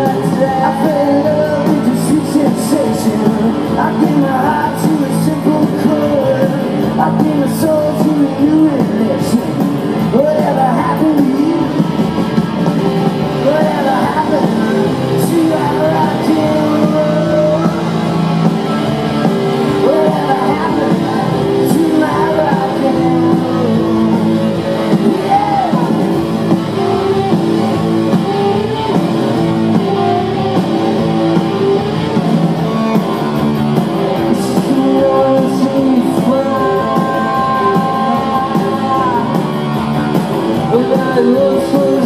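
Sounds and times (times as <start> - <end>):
man singing: 0.0 - 12.0, 13.3 - 26.2, 34.0 - 42.0
live rock band playing: 0.0 - 42.0.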